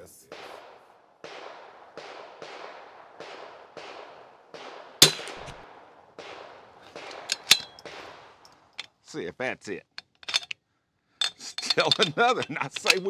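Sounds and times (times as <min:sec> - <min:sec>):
rifle shot: 0:00.3 - 0:08.4
rifle bolt metallic clicks: 0:05.0 - 0:05.6, 0:06.9 - 0:09.0, 0:10.0 - 0:10.6, 0:11.2 - 0:13.0.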